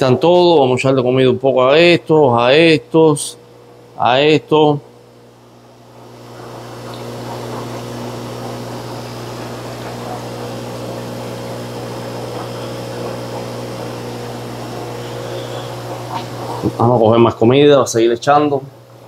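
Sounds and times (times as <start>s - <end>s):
low hum: 1.5s - 17.5s
aquarium water rushing: 5.0s - 17.6s.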